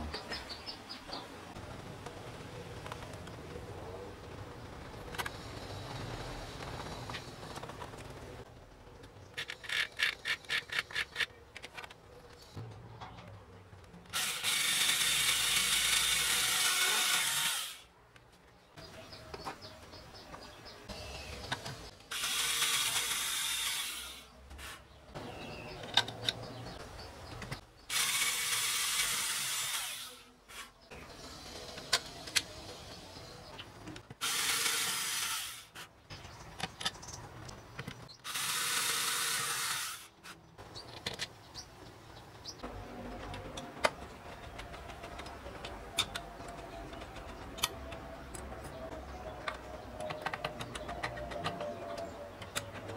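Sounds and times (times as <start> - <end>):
cordless drill driving screws: 14.2 - 17.8, 38.3 - 40.1.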